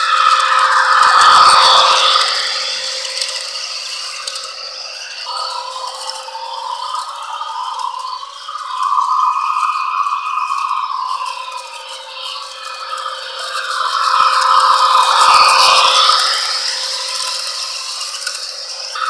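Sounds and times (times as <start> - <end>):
model train wheels rattling: 0.0 - 8.2, 11.3 - 19.0
motor whir: 0.0 - 19.0.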